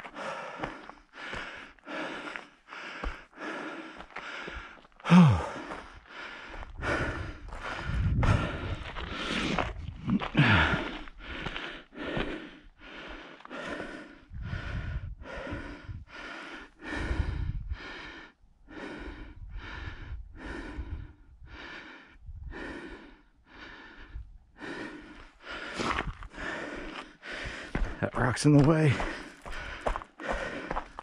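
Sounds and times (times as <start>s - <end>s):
person breathing hard: 0.0s - 31.0s
dull low thumps: 4.5s - 13.6s, 14.3s - 16.2s, 23.6s - 31.0s.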